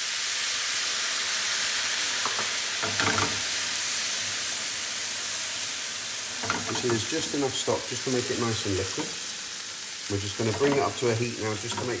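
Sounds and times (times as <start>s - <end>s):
stock sizzling in frying pan: 0.0s - 12.0s
spatula stirring: 10.4s - 12.0s.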